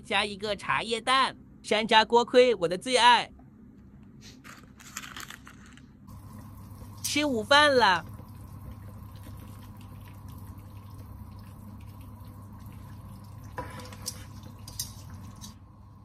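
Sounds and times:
low steady hum: 0.0 - 16.0
liquid dripping: 6.1 - 15.6
broth simmering: 6.1 - 16.0.

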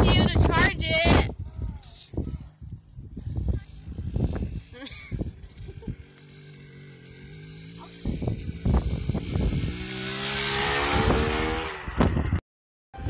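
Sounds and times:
dirt bike engine revving: 2.2 - 12.4.

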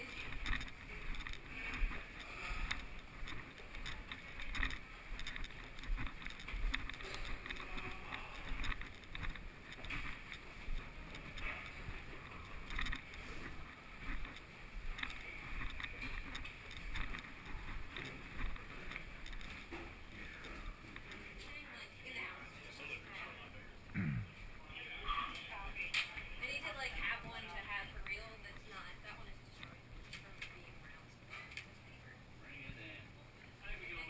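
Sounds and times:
camera handling rustle: 0.1 - 19.9.

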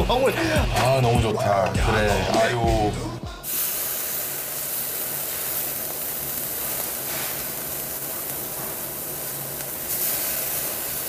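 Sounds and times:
ribs sizzling on a grill: 3.4 - 11.0.

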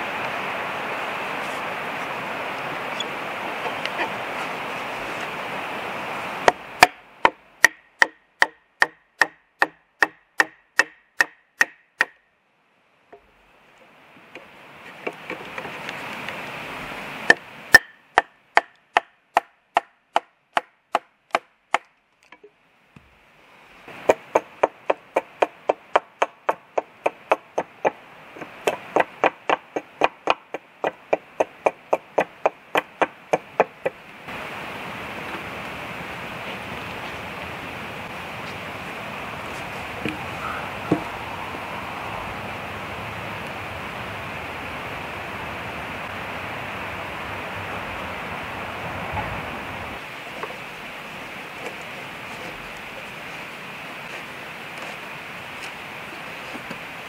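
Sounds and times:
steady hiss: 0.0 - 8.2, 12.4 - 19.0, 22.4 - 57.0
axe chopping wood: 6.4 - 12.2, 17.3 - 21.9, 24.0 - 34.0.

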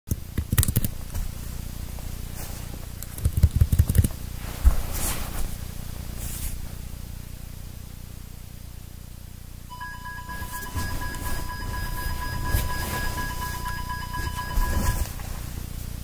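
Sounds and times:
steady low hum: 0.2 - 16.0
swishing rubs: 10.1 - 15.5.

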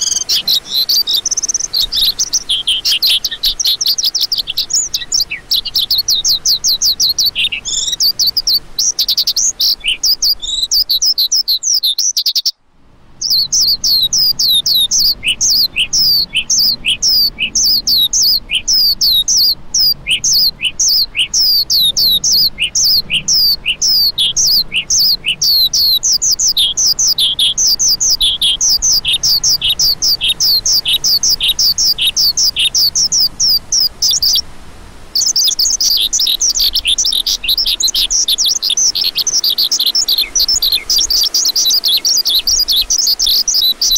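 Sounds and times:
lark chirping: 0.0 - 12.6, 13.2 - 34.4, 35.2 - 43.9.

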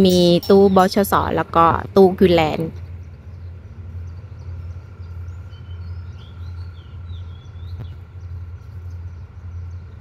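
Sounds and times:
steady low hum: 0.0 - 10.0
small bird chirping: 2.3 - 10.0.

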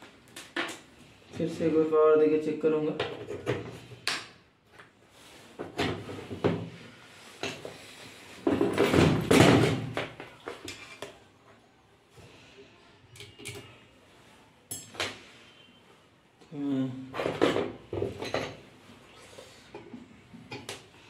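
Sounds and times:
tools and wires clicking and knocking: 0.2 - 0.9, 2.9 - 4.9, 8.4 - 11.2, 13.1 - 13.7, 19.7 - 20.9
clatter and rustle of tools: 7.3 - 11.6.

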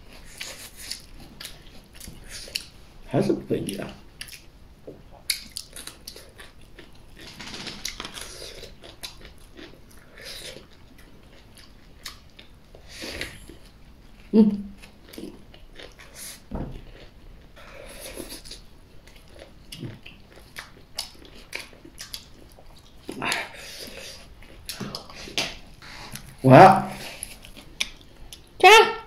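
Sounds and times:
chewing and crunching: 0.0 - 2.8, 3.6 - 26.4, 27.0 - 28.6
person humming: 14.3 - 14.8.

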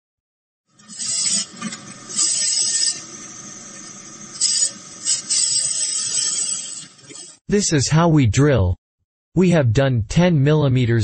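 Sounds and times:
drill motor hum: 0.7 - 7.4
drill scraping into metal: 0.7 - 7.4.

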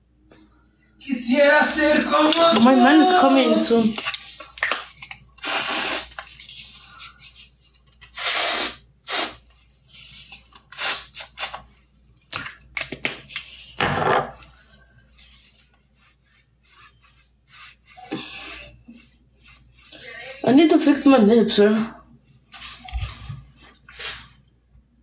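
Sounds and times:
spray can hissing: 5.4 - 6.2, 8.2 - 9.4.

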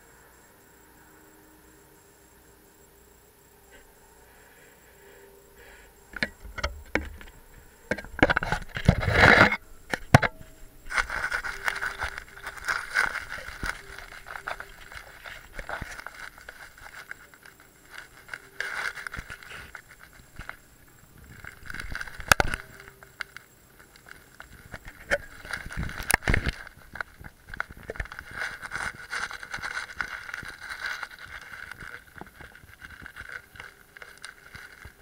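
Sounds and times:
camera scraping against wood: 7.9 - 10.3.

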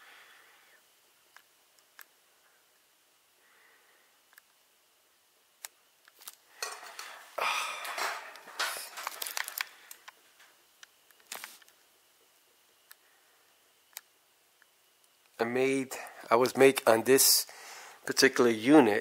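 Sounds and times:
rustling and scraping: 6.2 - 10.6.

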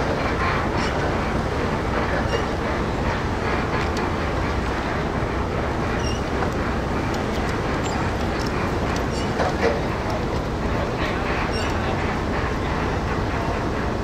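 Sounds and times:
low rumble of dockside machinery: 0.0 - 14.0
faint short squeaks: 6.0 - 6.3, 9.0 - 9.8, 11.5 - 11.8.

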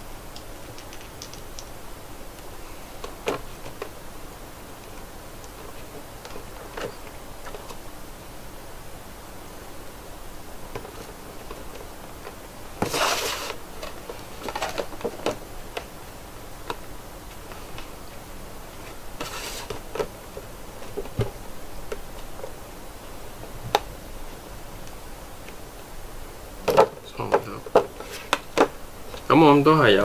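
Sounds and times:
rustling: 10.7 - 15.9, 17.2 - 21.4.

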